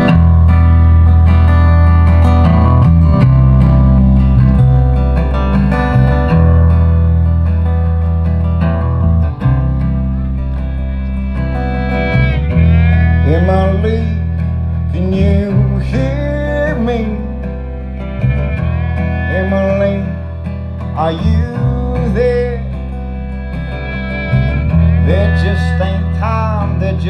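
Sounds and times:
acoustic guitar: 0.0 - 27.0
electric bass: 0.0 - 27.0
fiddle: 0.0 - 27.0.

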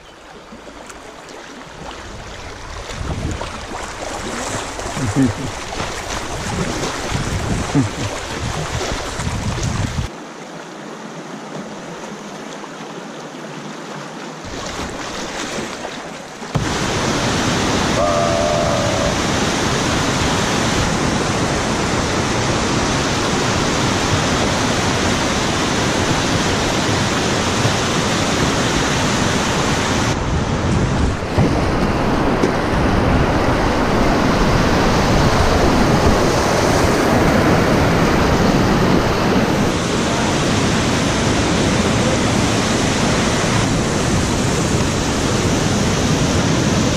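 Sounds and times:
paddle strokes splashing: 0.1 - 10.1, 14.4 - 19.4
whitewater rushing: 0.3 - 46.9.

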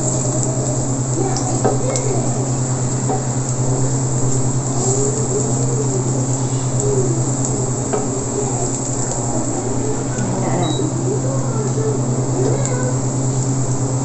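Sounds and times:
garlic sizzling in oil: 0.0 - 10.2
low hum of cooktop: 0.0 - 14.0.

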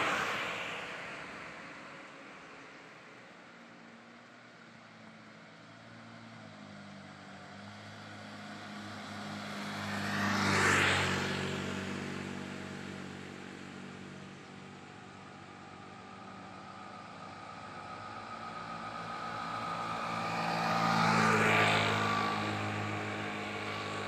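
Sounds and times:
motorbike passing by: 6.0 - 24.0.

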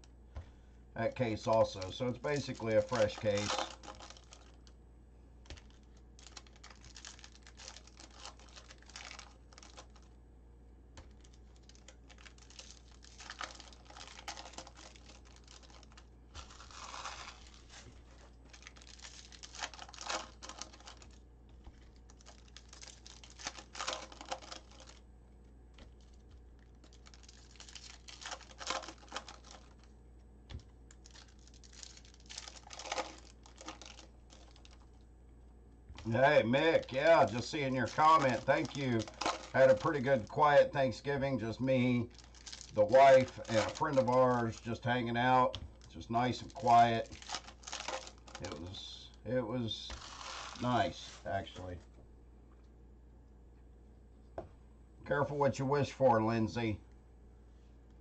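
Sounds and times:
foil packs tearing and crinkling: 1.3 - 4.7, 5.5 - 10.1, 11.1 - 21.2, 21.8 - 25.0, 26.0 - 29.9, 30.9 - 34.8, 36.0 - 48.9, 49.9 - 51.2.

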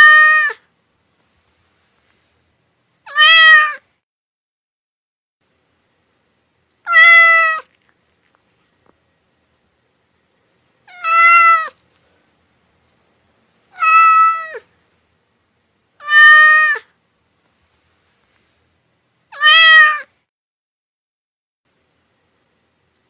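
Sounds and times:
cat meowing: 0.0 - 0.6, 3.1 - 3.8, 6.9 - 7.7, 10.9 - 11.8, 13.7 - 14.7, 16.0 - 16.9, 19.3 - 20.1.

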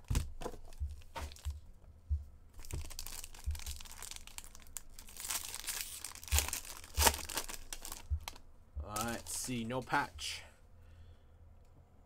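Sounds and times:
dull handling bumps: 0.0 - 4.2, 6.0 - 9.8
foil wrapper tearing and crinkling: 2.6 - 9.5.

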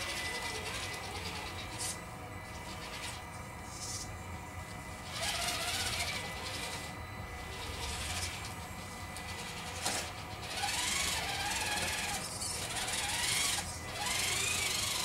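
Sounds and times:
electric motor and gearbox whining: 0.0 - 15.0.

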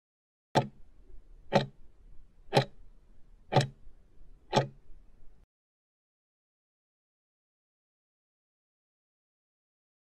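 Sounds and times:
clock-like timer ticks: 0.6 - 0.8, 1.5 - 1.9, 2.5 - 3.8, 4.5 - 4.8.

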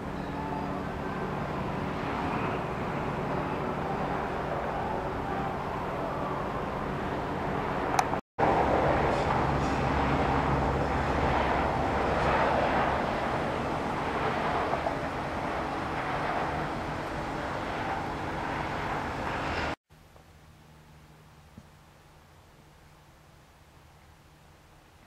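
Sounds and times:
broad rushing noise: 0.0 - 19.8
engine running: 0.0 - 21.8.

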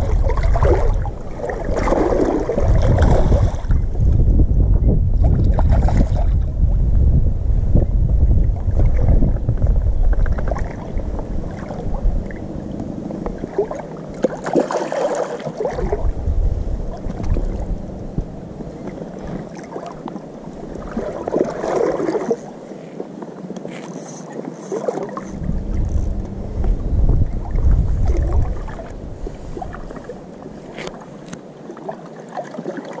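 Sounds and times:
fish splashing in water: 0.0 - 3.8, 13.4 - 16.1, 20.8 - 22.4
wind buffeting microphone: 0.0 - 14.8, 15.5 - 22.5, 25.2 - 31.4.

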